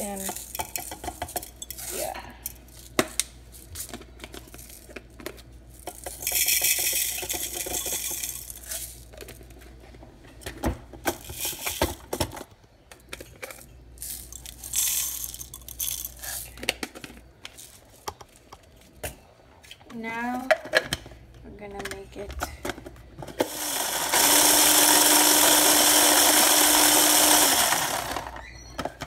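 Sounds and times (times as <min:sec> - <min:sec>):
candy sprinkles pouring into plastic bowl: 0:14.0 - 0:16.4.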